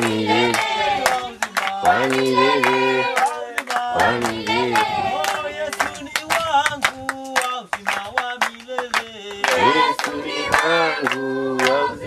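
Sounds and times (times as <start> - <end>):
congregation singing a hymn: 0.0 - 6.6, 8.4 - 12.0
congregation clapping: 0.0 - 12.0.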